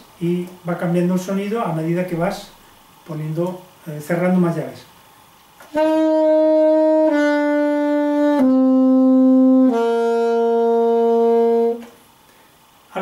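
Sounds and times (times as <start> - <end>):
alto saxophone held notes: 5.6 - 12.0.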